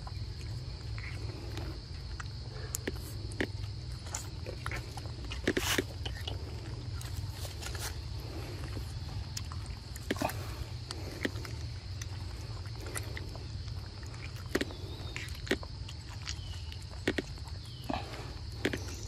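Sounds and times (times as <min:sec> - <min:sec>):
insects droning: 0:00.0 - 0:19.0
rustling in dry leaves: 0:06.6 - 0:09.1.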